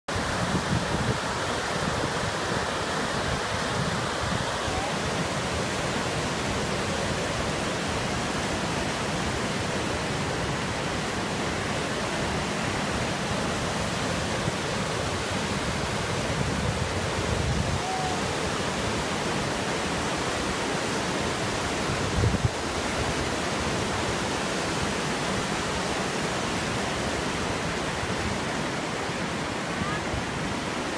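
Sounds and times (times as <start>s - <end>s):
river rushing over rocks: 0.1s - 30.9s.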